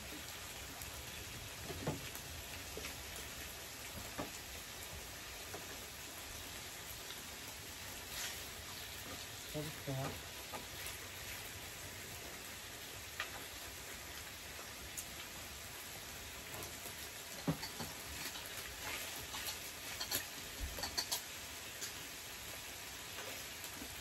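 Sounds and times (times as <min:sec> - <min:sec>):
meat sizzling on grill: 0:00.0 - 0:24.0
tongs clicking against grill: 0:19.4 - 0:22.0.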